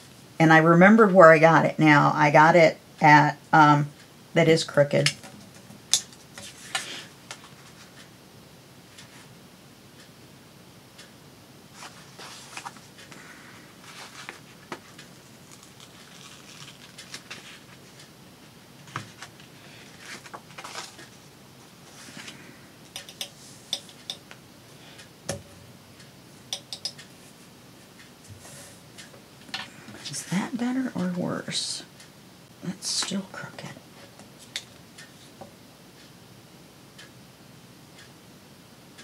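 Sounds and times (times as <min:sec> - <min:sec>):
soft rustling: 0:11.7 - 0:18.1, 0:18.8 - 0:22.4.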